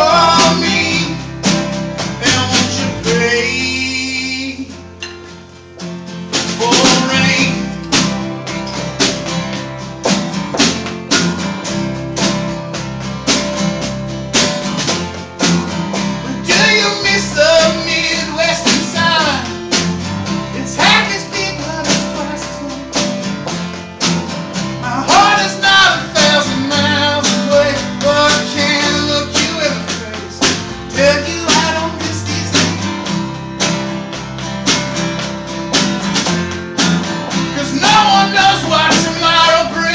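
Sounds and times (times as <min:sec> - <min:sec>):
man singing: 0:00.0 - 0:01.5, 0:02.1 - 0:04.9, 0:06.5 - 0:08.0, 0:16.2 - 0:19.8, 0:20.5 - 0:23.1, 0:24.8 - 0:33.1, 0:37.4 - 0:39.9
snare drum beat: 0:00.0 - 0:02.9, 0:06.4 - 0:39.9
strummed acoustic guitar: 0:00.0 - 0:39.9.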